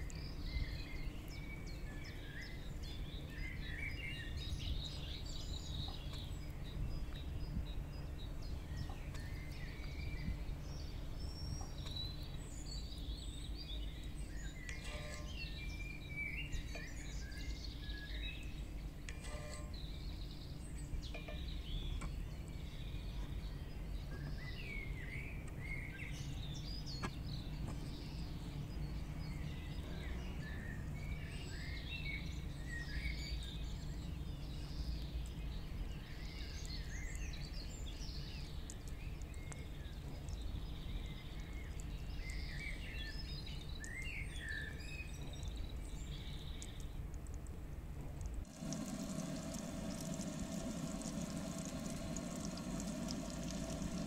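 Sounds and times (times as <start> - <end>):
low outdoor rumble: 47.3 - 54.0
birds chirping: 48.5 - 54.0
hot oil sizzling in a pan: 48.5 - 54.0.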